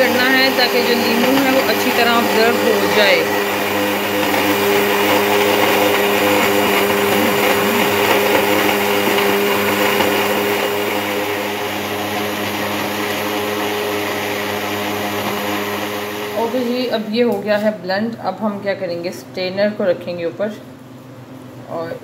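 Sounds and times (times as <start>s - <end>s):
blender motor humming: 0.0s - 17.3s.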